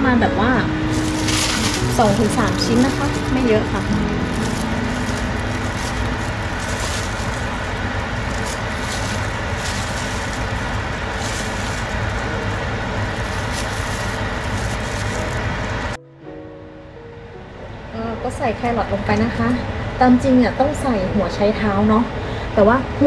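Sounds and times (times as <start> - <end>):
faint crackles: 0.9 - 16.0.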